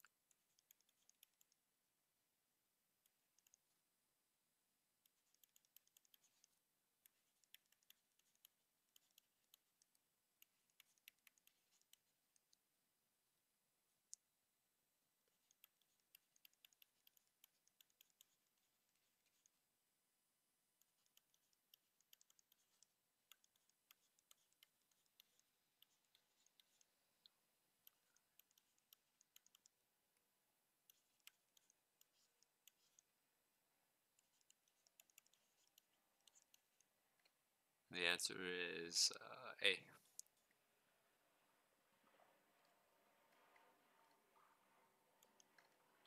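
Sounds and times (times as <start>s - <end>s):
pen stylus tapping on tablet: 15.4s - 18.6s.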